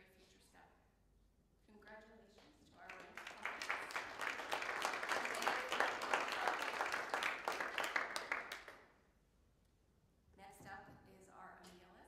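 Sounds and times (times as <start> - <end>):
audience applauding: 2.9 - 8.8.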